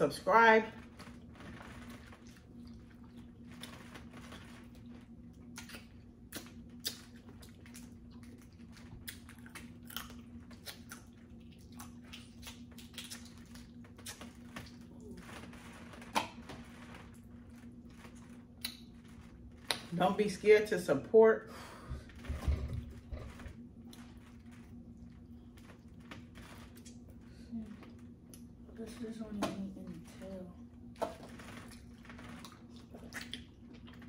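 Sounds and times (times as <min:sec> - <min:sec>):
chewing: 0:01.8 - 0:15.3, 0:16.1 - 0:19.8, 0:31.0 - 0:34.0.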